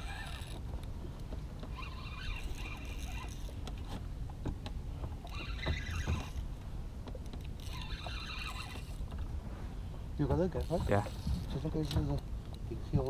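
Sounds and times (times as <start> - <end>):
fishing reel whirring: 0.0 - 0.6, 1.7 - 3.6, 5.2 - 6.4, 7.6 - 9.1
water against a boat: 0.0 - 13.0
wind: 0.0 - 13.0.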